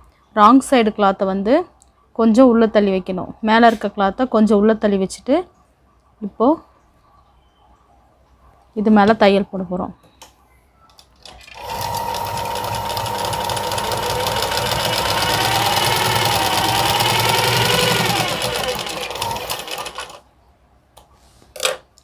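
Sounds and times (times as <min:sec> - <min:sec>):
sewing machine stitching fabric: 0:11.2 - 0:20.2.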